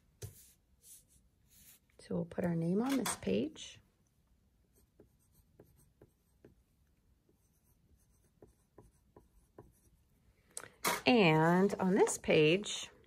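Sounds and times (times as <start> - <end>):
pencil scratching on paper: 0.2 - 1.9, 4.7 - 10.1.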